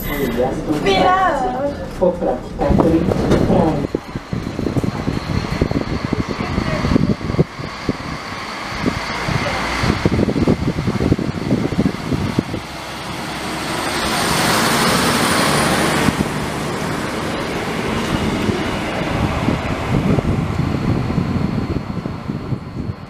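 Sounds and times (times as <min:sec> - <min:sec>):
high wheel squeal: 0:00.0 - 0:01.1
train passing close by: 0:00.0 - 0:23.0.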